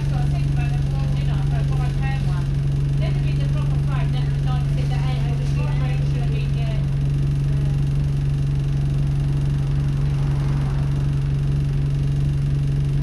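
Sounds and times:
bus diesel engine humming: 0:00.0 - 0:13.0.

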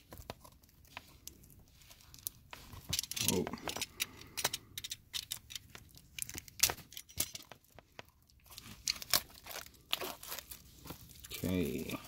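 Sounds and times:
plastic wrap crackling: 0:05.4 - 0:12.0
knife slitting plastic wrap: 0:08.6 - 0:11.9.

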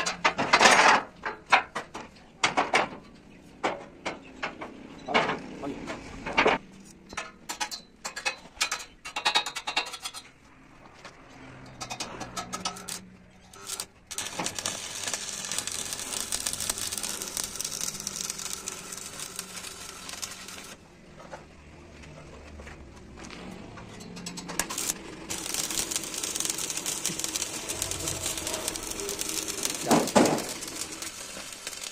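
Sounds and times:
rough hissing scraping on metal: 0:12.7 - 0:20.8, 0:24.6 - 0:31.9.

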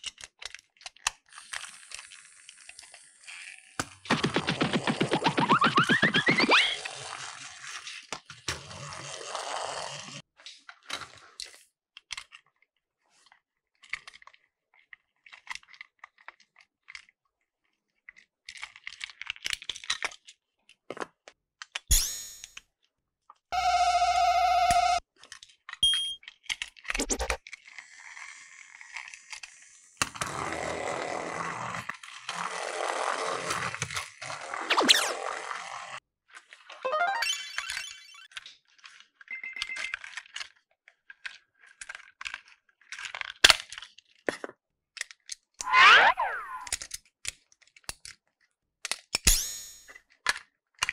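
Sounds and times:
plastic toy trains clicking and rattling: 0:00.0 - 0:04.1, 0:09.9 - 0:21.9, 0:25.2 - 0:30.8, 0:38.3 - 0:45.6, 0:46.7 - 0:49.3
steady electronic tone: 0:04.1 - 0:06.8
rushing whir: 0:45.6 - 0:46.7.

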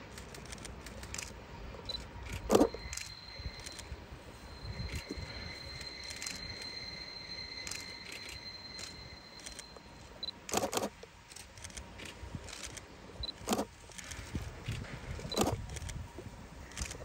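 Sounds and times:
camera focus beeps: 0:00.5 - 0:14.1, 0:15.2 - 0:16.0, 0:16.7 - 0:17.0
steady high-pitched tone: 0:01.5 - 0:10.6.

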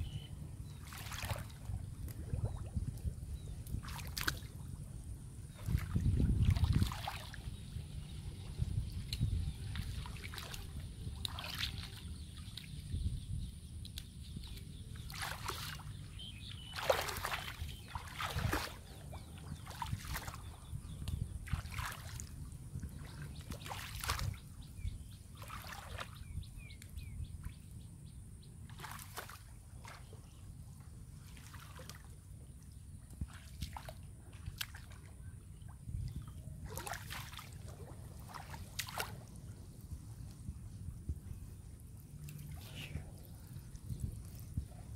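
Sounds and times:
muddy water splashing: 0:00.0 - 0:13.0, 0:13.8 - 0:26.9, 0:28.6 - 0:30.4, 0:31.1 - 0:44.9
steady low rumble: 0:00.0 - 0:16.8, 0:37.6 - 0:44.9.

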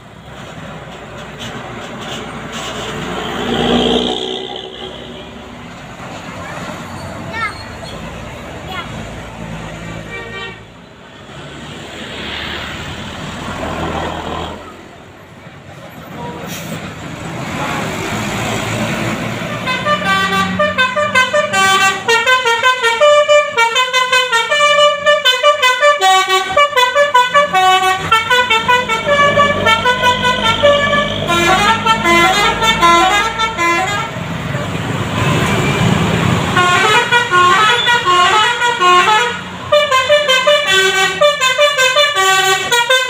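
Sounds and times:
buses passing: 0:00.0 - 0:43.0
multi-tone bus horn tune: 0:09.8 - 0:10.8, 0:16.1 - 0:16.8, 0:19.4 - 0:43.0.

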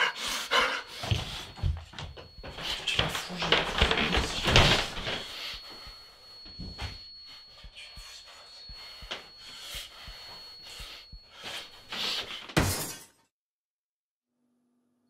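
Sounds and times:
high-pitched ringing tone: 0:00.0 - 0:12.5.

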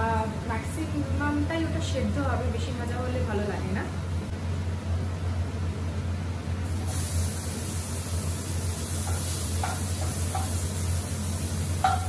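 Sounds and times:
vegetables sizzling in a frying pan: 0:06.6 - 0:12.0
spatula tapping a plate: 0:09.0 - 0:10.6.

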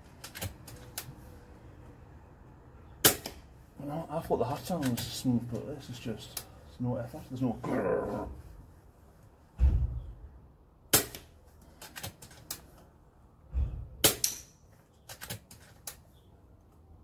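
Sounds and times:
air rifle shot thump: 0:09.6 - 0:10.3.

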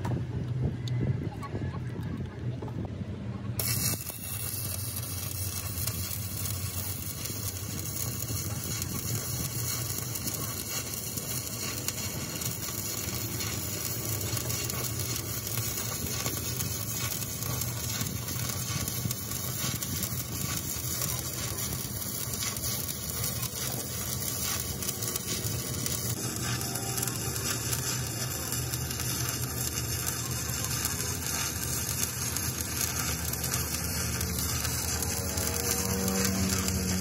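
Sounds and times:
welding arc crackling hiss: 0:03.6 - 0:37.0.

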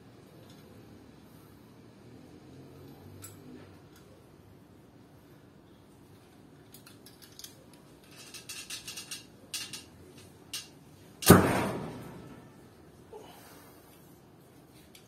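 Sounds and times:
arrow striking target: 0:11.2 - 0:12.4.

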